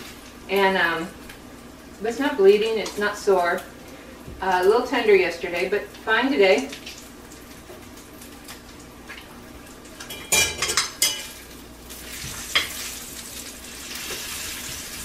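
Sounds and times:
bacon sizzling in a pan: 4.5 - 15.0
utensil clattering on pan: 10.1 - 11.4.

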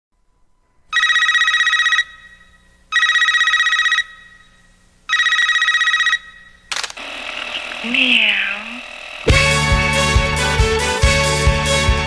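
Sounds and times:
telephone ringing: 0.9 - 9.3.

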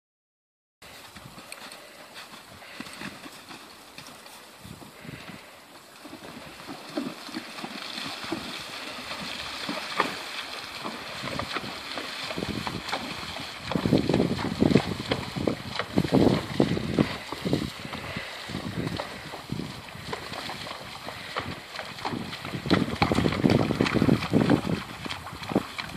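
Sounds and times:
horse splashing through water: 0.9 - 25.9
running water: 6.0 - 25.9.

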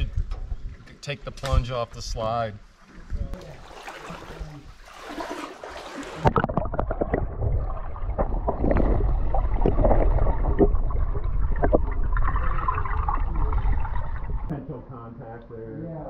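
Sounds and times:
muffled underwater sloshing: 2.6 - 14.5
steady low rumble: 7.4 - 16.0.

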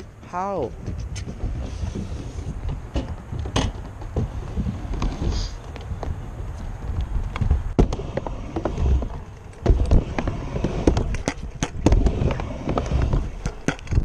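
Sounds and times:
scooter wheels rumbling on ramps: 0.0 - 14.0
scooter deck clacking on surface: 2.6 - 6.1, 7.0 - 14.0.

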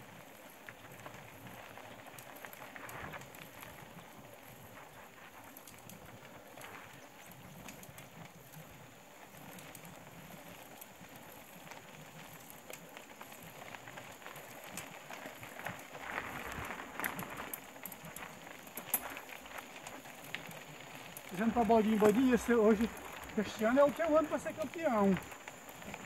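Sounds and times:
bike clicks and rattles: 0.0 - 26.0
bike tyres rolling on dirt: 0.0 - 26.0.

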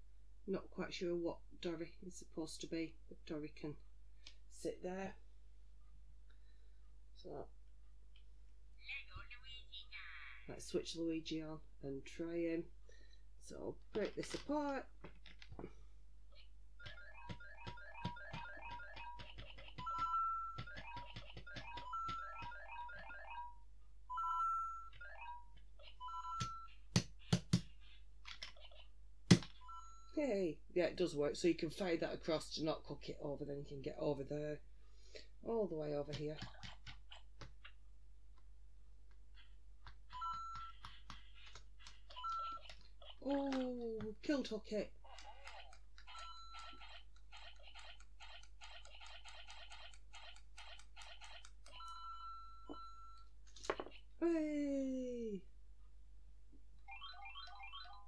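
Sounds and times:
toy electronic beeps and chirps: 16.8 - 28.0, 29.5 - 30.2, 40.1 - 41.1, 41.9 - 43.2, 45.3 - 53.3, 56.8 - 58.0
plastic knocking on plastic: 26.9 - 27.7.

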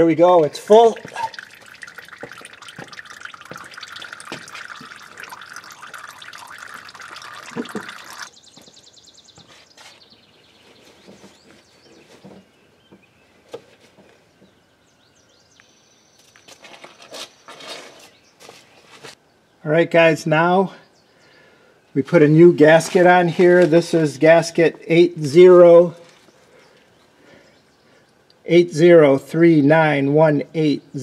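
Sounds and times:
faint drips: 0.4 - 8.3
oil trickling into pan: 0.6 - 8.3.

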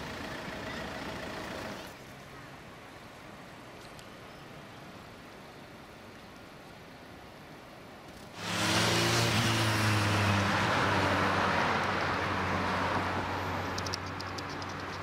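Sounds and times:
vehicle engine hum: 0.0 - 2.0, 8.2 - 15.0
tyre and road noise: 8.0 - 15.0.

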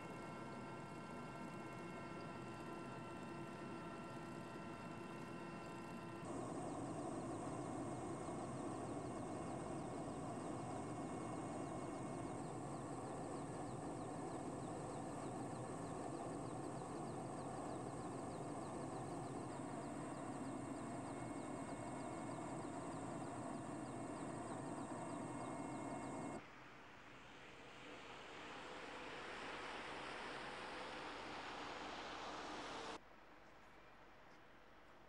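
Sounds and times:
helicopter engine and rotor drone: 0.0 - 26.4.

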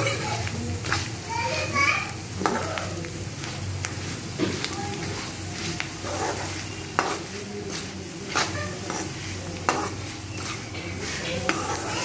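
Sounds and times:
frying sizzle: 0.0 - 12.0
ladle scraping a pan: 6.0 - 12.0.

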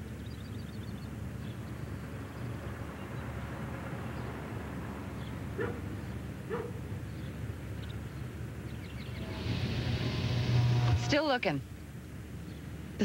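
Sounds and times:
low outdoor background: 0.0 - 13.0
dog barking: 5.6 - 5.9, 6.5 - 6.9.

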